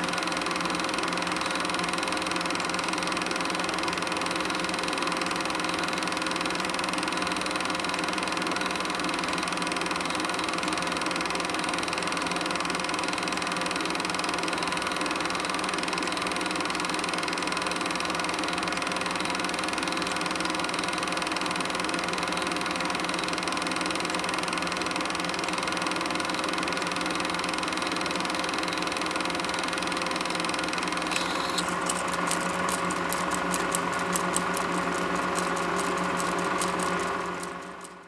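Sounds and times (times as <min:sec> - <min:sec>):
film projector whirring: 0:00.0 - 0:38.0
rapid even clicking: 0:30.8 - 0:38.0.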